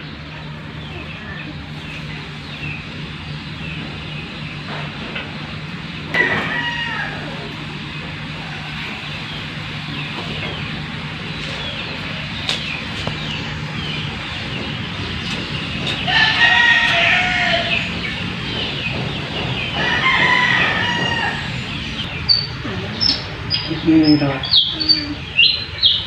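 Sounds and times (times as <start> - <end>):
rooster crowing: 6.1 - 7.7, 16.0 - 18.0, 19.8 - 21.8.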